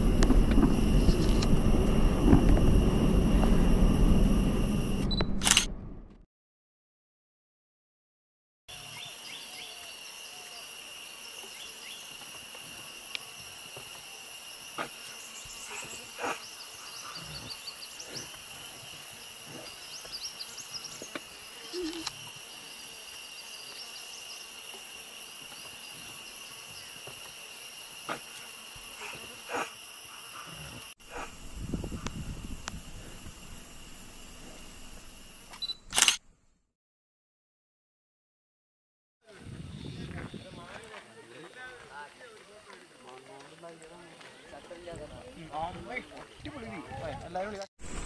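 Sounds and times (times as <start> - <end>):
insect chorus droning: 0.0 - 5.2, 8.7 - 35.8
low rumble: 0.0 - 6.2, 31.0 - 35.5
short sharp insect calls: 8.7 - 36.2.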